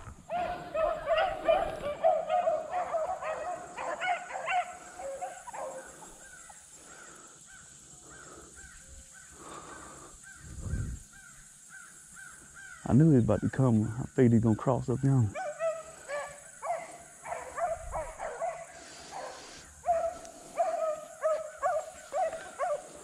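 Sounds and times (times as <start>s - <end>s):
hounds baying: 0.3s - 8.3s, 15.3s - 23.0s.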